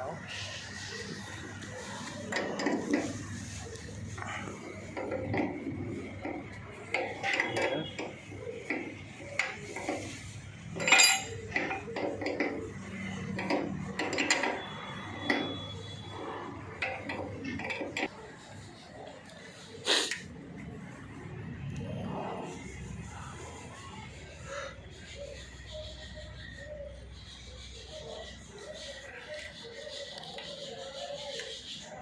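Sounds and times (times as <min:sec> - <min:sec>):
spanner and metal parts clinking: 0:02.0 - 0:03.3, 0:04.1 - 0:16.0, 0:16.6 - 0:18.1.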